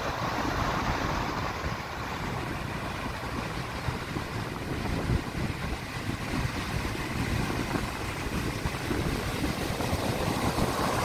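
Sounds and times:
large waves breaking: 0.0 - 11.0
wind buffeting microphone: 0.0 - 11.0.

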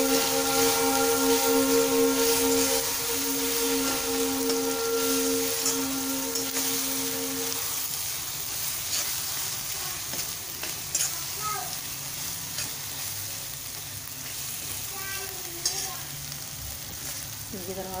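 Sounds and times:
steel spoon scraping a pan: 0.0 - 13.1, 15.5 - 16.1
onion and tomato sizzling in oil: 0.0 - 18.0.

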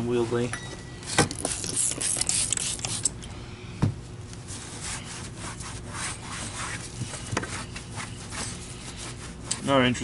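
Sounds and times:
rag rubbing plastic: 1.4 - 3.1.

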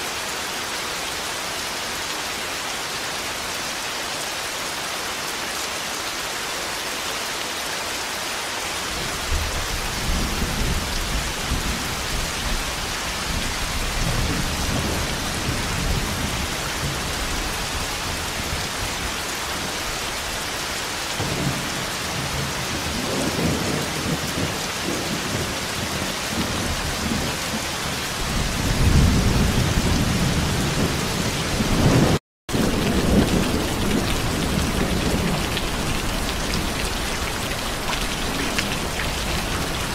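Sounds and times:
heavy rain: 0.0 - 39.9
thunder rumbling: 28.2 - 39.9.

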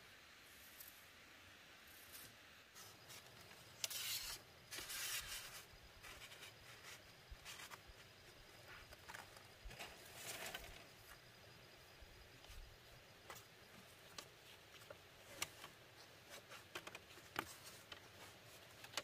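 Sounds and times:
bamboo strips scraping on dirt: 1.9 - 8.1.

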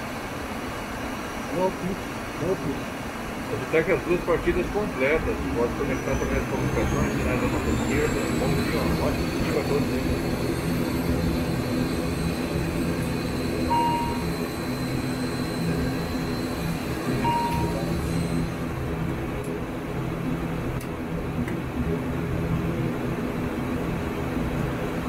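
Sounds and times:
turboprop engines idling: 0.1 - 25.0
short beeps: 13.6 - 18.5.

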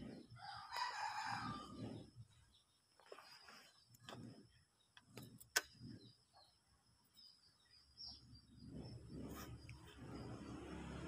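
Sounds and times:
bird chirps: 0.2 - 11.0
low rumbling noise: 7.9 - 11.0.

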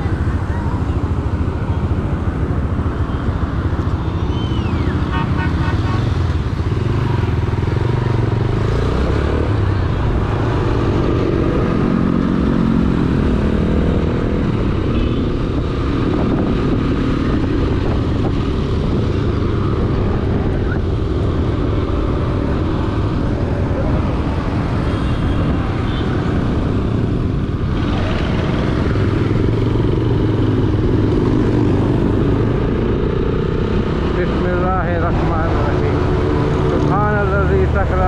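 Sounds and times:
road and wind noise: 0.0 - 38.0
vehicle horn beeping: 4.8 - 6.3.

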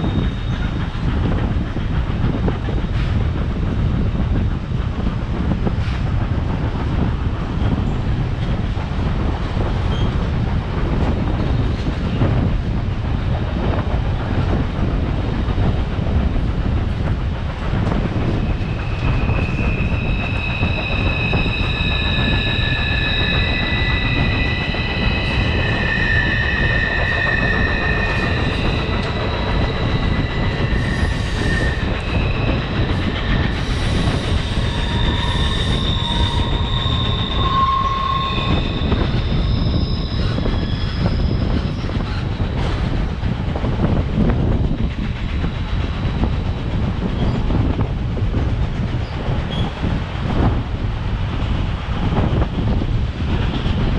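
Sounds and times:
train wheels rumbling on rail: 0.0 - 53.9
wheels squealing: 18.3 - 42.3.

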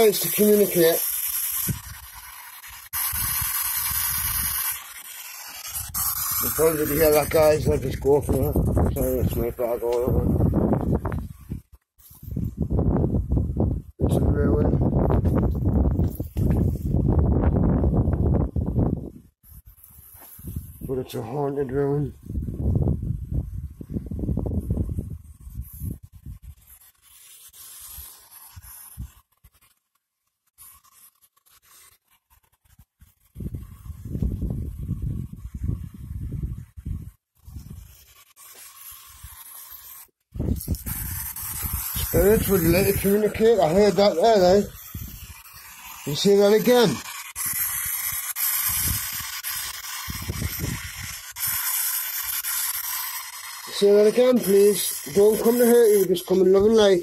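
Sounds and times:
choppy radio static hiss: 0.0 - 11.3, 38.4 - 57.0.

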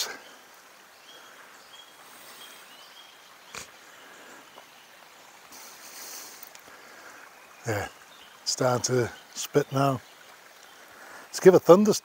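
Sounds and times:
high bird calls: 0.0 - 11.3
river flowing over stones: 0.0 - 12.0.

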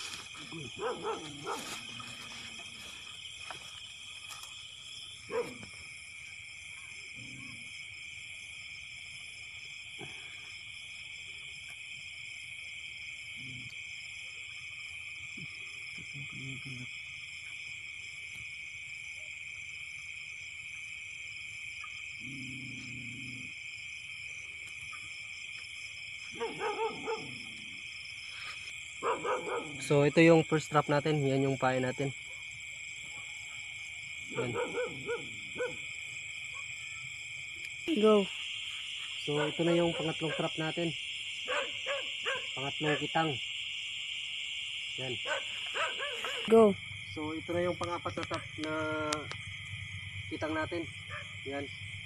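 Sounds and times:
night insects chirring: 0.0 - 52.0
low animal calls: 6.8 - 7.7, 22.2 - 23.7.

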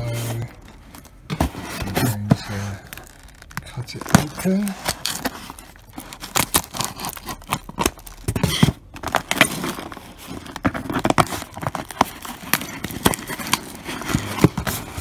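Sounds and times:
packing tape and cardboard tearing: 0.0 - 15.0.

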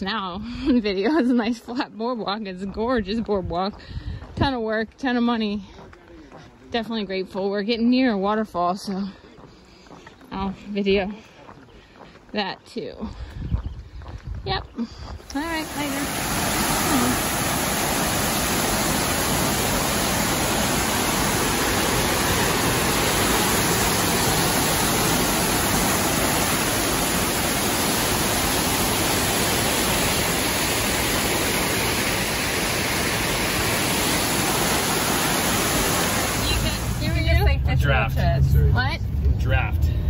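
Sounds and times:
waterfall rushing: 15.3 - 38.4.

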